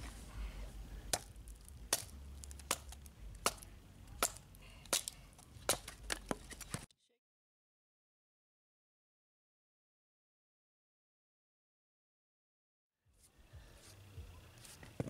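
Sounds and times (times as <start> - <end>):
knife chopping wood: 1.1 - 6.8.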